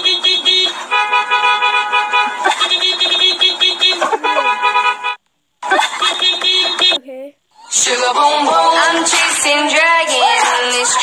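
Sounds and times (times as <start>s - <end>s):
car horn tooting rapidly: 0.1s - 5.2s.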